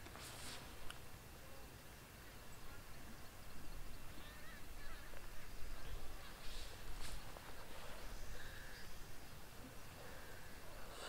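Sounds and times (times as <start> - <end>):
brief rustle: 0.0 - 1.0, 6.2 - 8.1
faint bird calls: 1.3 - 11.0.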